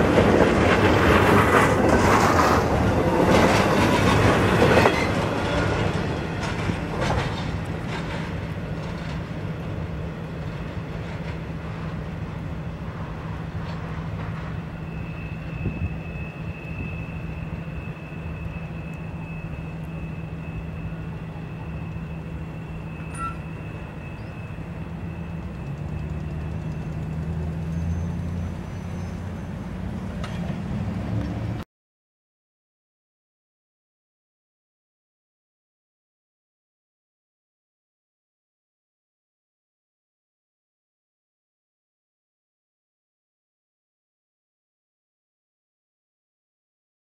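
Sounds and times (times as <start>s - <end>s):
freight train rumble: 0.0s - 31.6s
faint high whine: 14.6s - 29.6s.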